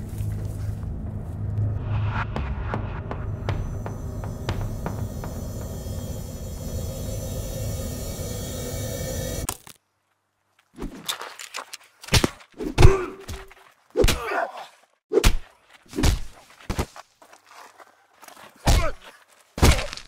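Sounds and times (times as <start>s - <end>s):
feet scuffing on dirt: 15.4s - 20.0s.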